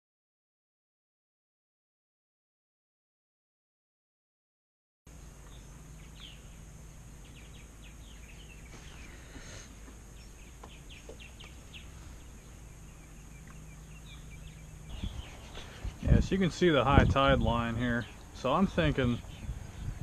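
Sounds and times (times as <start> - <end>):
small birds chirping: 5.1 - 20.0
steady background hiss: 5.1 - 20.0.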